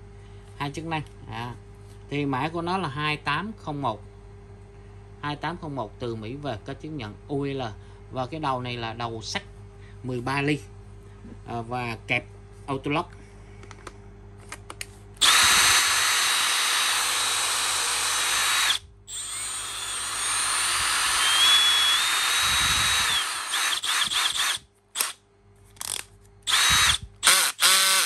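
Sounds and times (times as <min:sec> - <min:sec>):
cordless drill whining: 0:15.2 - 0:25.2, 0:25.8 - 0:28.0.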